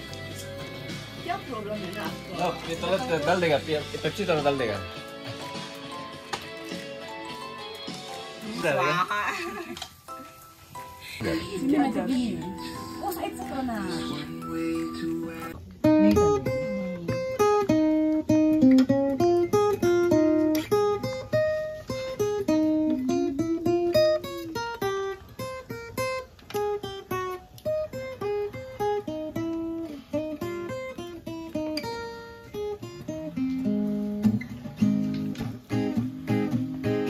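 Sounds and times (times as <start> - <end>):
acoustic guitar melody: 0.0 - 37.0.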